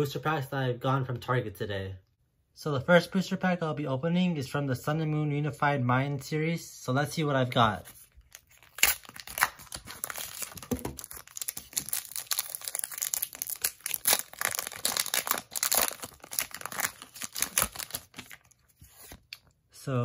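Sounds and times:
foil wrapper crinkling and tearing: 8.0s - 19.5s.

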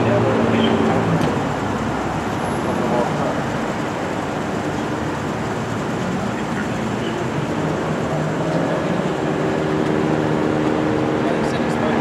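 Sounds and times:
engine rumble: 0.0s - 12.0s
street traffic rumble: 0.0s - 12.0s.

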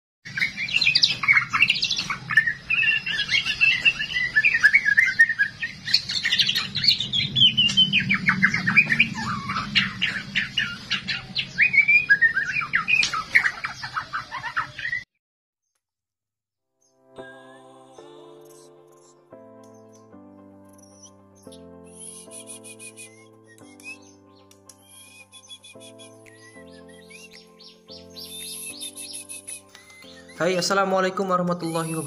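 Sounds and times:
bird chirps and sliding whistles: 20.8s - 24.2s, 24.8s - 30.4s.

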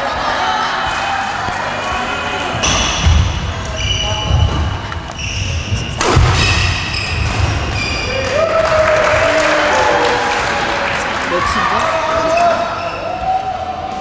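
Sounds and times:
sneakers squeaking: 2.4s - 8.4s, 12.1s - 13.3s
racket hitting shuttlecock: 5.9s - 6.7s.

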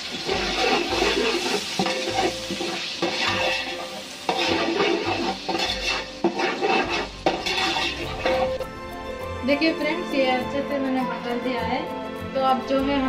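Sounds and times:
mixture sizzling: 0.0s - 10.4s
spoon scraping steel pot: 0.3s - 8.6s.

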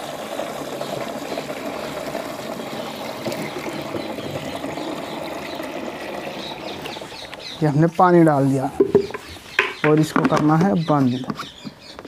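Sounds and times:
water pouring into plastic tank: 0.0s - 9.3s.

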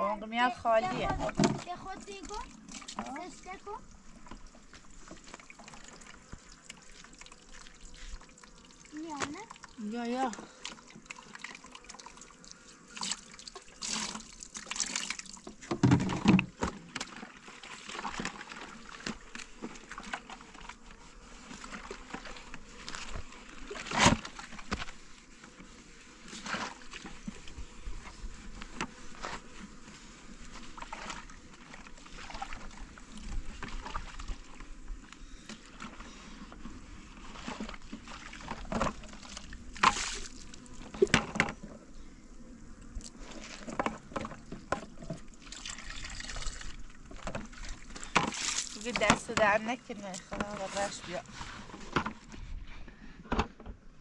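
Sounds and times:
water trickling into plastic jug: 0.9s - 20.9s, 30.6s - 36.0s, 37.2s - 41.8s, 42.9s - 51.3s.

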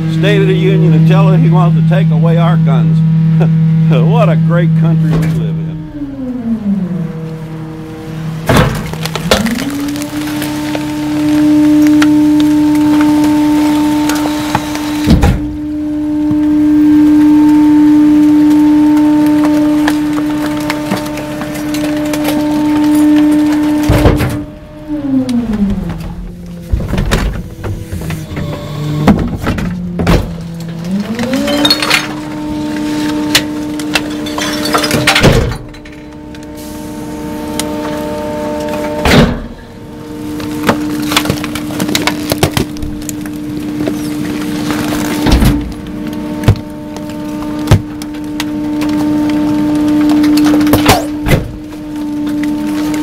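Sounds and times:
droning tone gliding up: 0.0s - 42.2s, 42.8s - 50.7s
plastic bags and boxes crackling: 8.4s - 15.0s, 18.0s - 24.0s, 39.8s - 53.0s.

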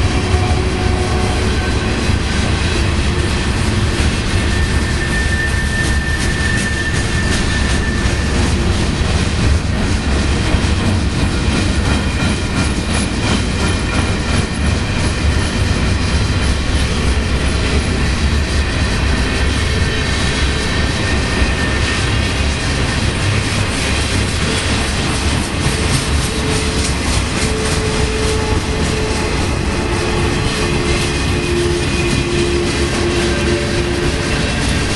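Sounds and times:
train wheels rumbling on rail: 0.0s - 34.9s
high wheel squeal: 0.2s - 8.8s, 15.2s - 24.9s, 25.6s - 34.9s.

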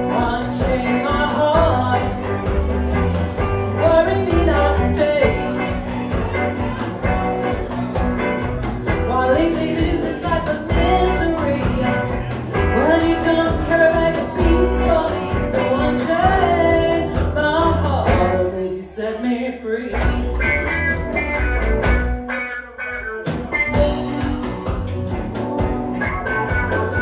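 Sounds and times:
woman singing: 0.0s - 6.8s, 8.9s - 20.4s
blues-rock band playing: 0.0s - 18.7s, 19.9s - 27.0s.

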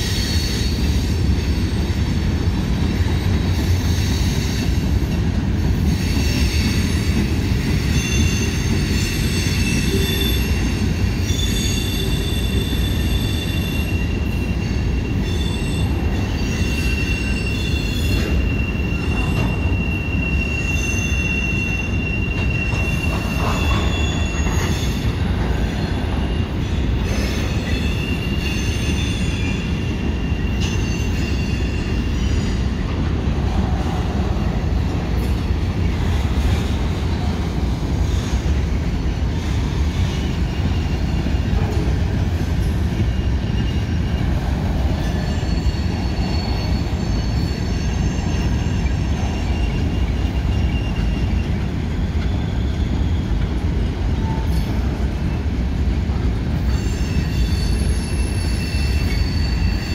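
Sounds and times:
train wheels rumbling on rail: 0.0s - 59.9s
high-pitched wheel squeals: 5.9s - 32.7s, 43.0s - 53.6s, 56.6s - 59.9s.

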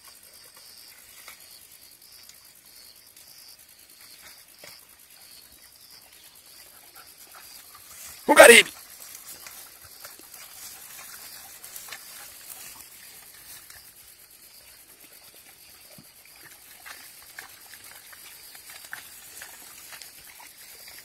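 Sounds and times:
dry grass rustling and crackling: 8.8s - 14.5s, 16.3s - 21.0s.

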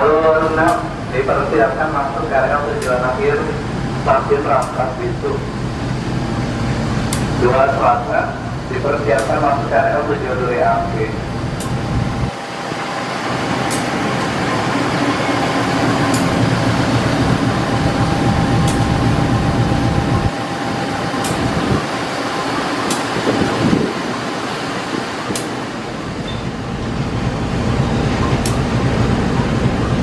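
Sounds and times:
diesel locomotive engine running: 0.0s - 30.0s
thin steady whine: 1.1s - 24.4s.

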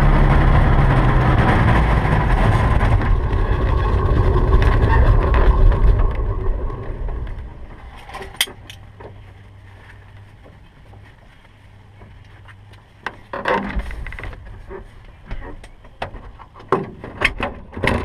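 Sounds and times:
aircraft engine shutting down: 0.0s - 8.7s
rustling and handling in cockpit: 7.1s - 18.0s.

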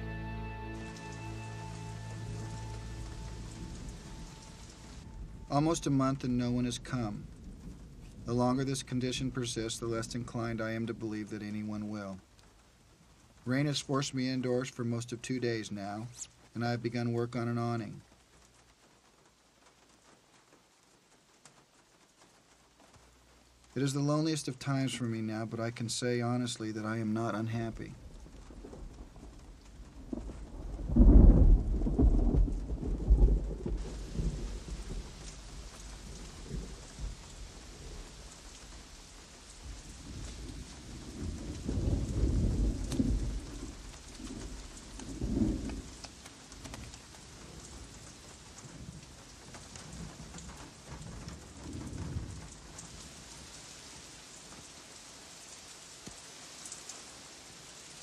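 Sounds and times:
steady rain hiss: 0.0s - 58.0s
rolling thunder: 2.2s - 10.6s, 27.7s - 53.6s.

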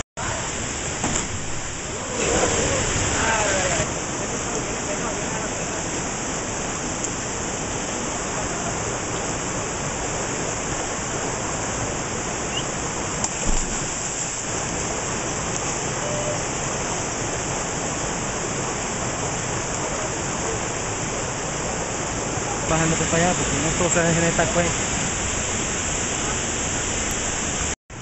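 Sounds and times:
river rushing over rocks: 0.2s - 27.8s
brief thump: 1.0s - 1.4s.

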